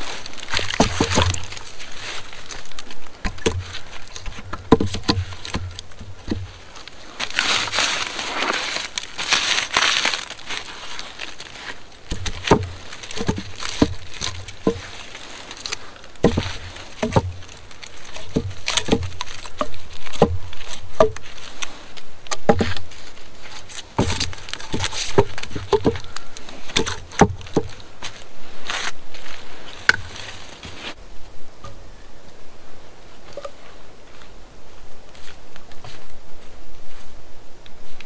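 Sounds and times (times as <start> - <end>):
dry leaves rustling underfoot: 0.0 - 38.0
hollow wooden log knocks: 0.6 - 1.6, 3.2 - 6.5, 12.1 - 14.9, 16.2 - 21.2, 22.3 - 22.8, 24.0 - 26.1, 26.7 - 27.8.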